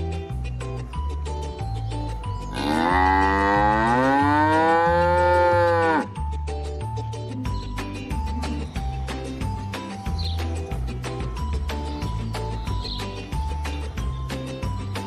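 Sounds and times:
background music with bass line: 0.0 - 15.0
cow mooing: 2.5 - 6.1.

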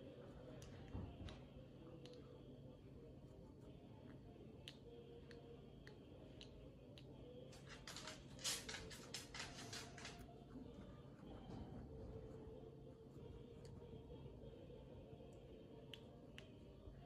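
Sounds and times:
guinea pig crunching food: 0.0 - 17.0.

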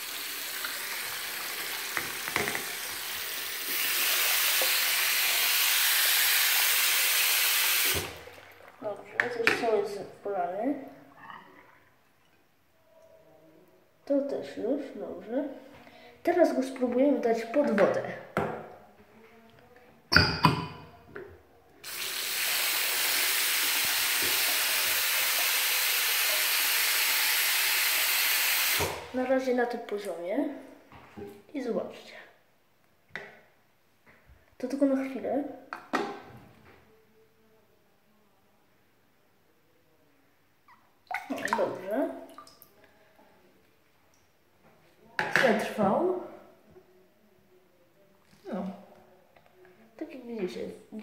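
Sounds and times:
water running into washbasin: 0.0 - 10.0, 21.8 - 29.4
tap water splashing in basin: 1.9 - 3.0, 6.4 - 9.7, 23.7 - 24.7, 41.1 - 42.7.

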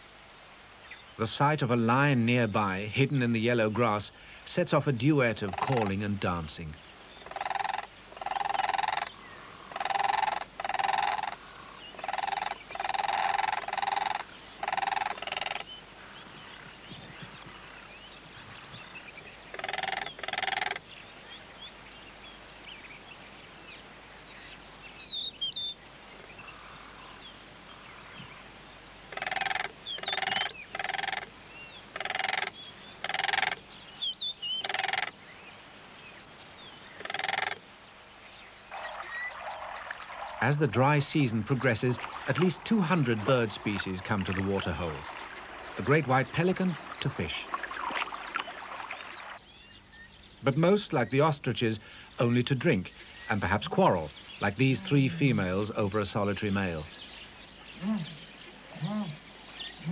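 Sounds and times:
cranes calling in a duet: 38.7 - 49.4.

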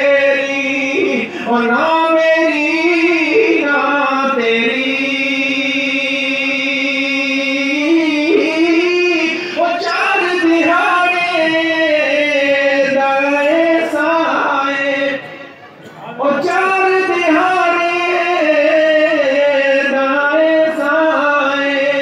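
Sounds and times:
man singing unaccompanied: 0.0 - 15.4, 16.0 - 22.0.

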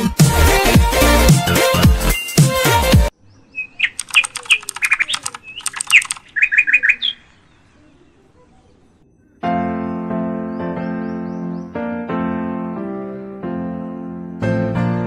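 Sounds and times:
electronic music: 0.0 - 3.1
small birds chirping: 3.1 - 11.8
piano music: 9.4 - 15.0.

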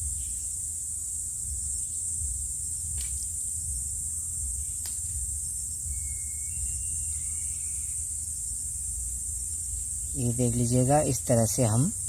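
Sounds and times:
background hiss and rumble: 0.0 - 12.0.

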